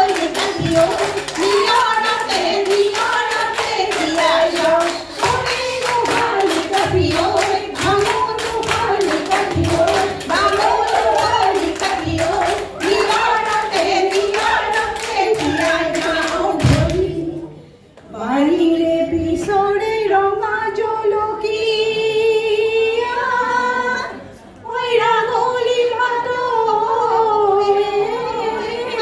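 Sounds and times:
rhythmic hand clapping: 0.0s - 17.2s
women singing folk song: 0.0s - 29.0s.

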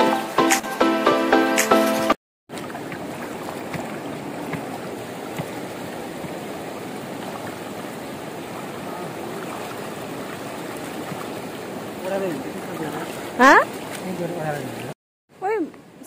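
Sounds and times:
faint splashes of wading feet: 2.5s - 15.0s
water rushing over stones: 2.5s - 15.0s.

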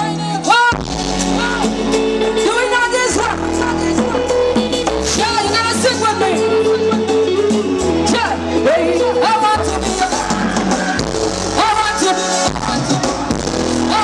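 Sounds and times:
electric bass guitar: 0.0s - 14.0s
keyboards: 0.0s - 14.0s
person singing on microphone: 0.0s - 14.0s
steady drum beat: 9.7s - 14.0s.

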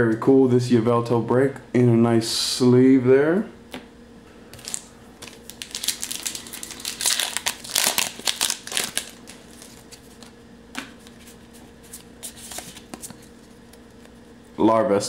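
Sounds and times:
foil wrapper crinkling: 4.6s - 10.3s.

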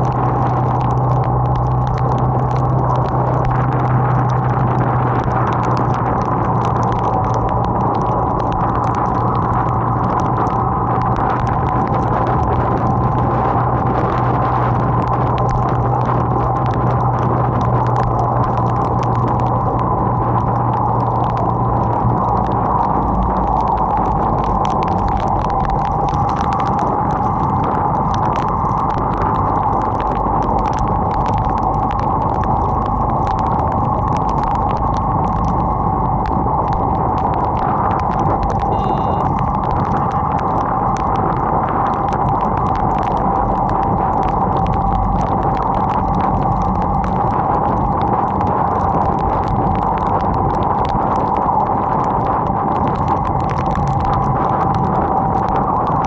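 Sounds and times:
raindrops ticking: 0.0s - 56.0s
wind and rain rushing: 0.0s - 56.0s
motorcycle running: 36.6s - 47.5s.

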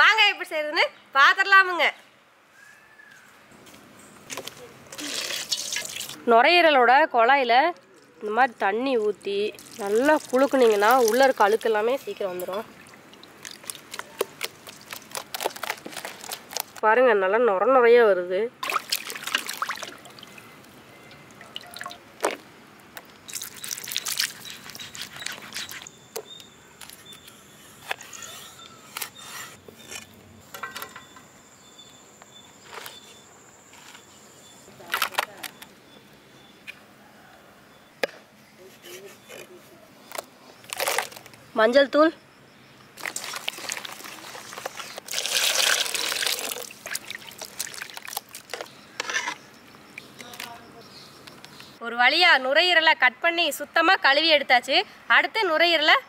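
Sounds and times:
water dripping and splashing: 8.9s - 16.7s, 18.6s - 20.5s, 21.1s - 22.4s, 23.0s - 24.5s, 43.0s - 48.6s
water pouring into metal bowl: 45.1s - 48.1s.

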